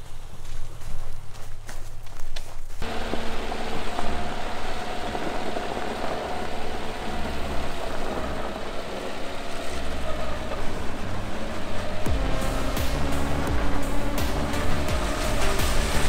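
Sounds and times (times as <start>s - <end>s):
tyre and wind noise: 0.0s - 16.0s
diesel car engine running: 2.8s - 16.0s.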